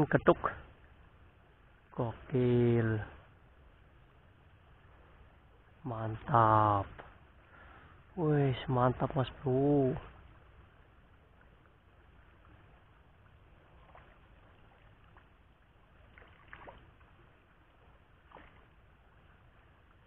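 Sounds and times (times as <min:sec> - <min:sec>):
fish splashing in water: 0:12.3 - 0:19.4.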